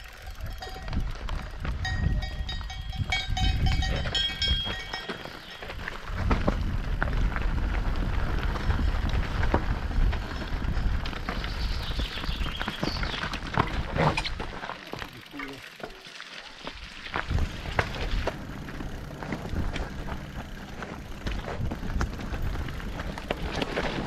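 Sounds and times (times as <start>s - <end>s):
bells ringing: 0.0s - 5.9s
wind rumbling on microphone: 0.4s - 5.0s, 5.8s - 14.5s, 17.1s - 24.0s
tyres clattering over stones: 10.2s - 22.2s.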